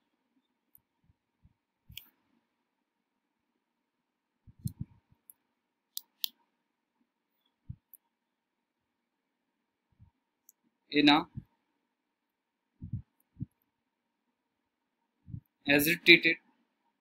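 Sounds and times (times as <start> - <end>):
soft low thumps: 12.8 - 13.5.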